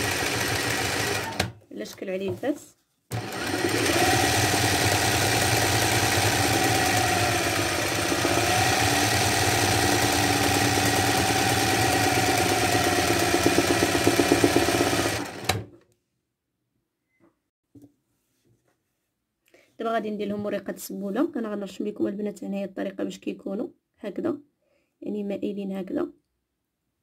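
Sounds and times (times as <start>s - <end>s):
sewing machine running: 0.0s - 1.6s, 3.1s - 15.7s.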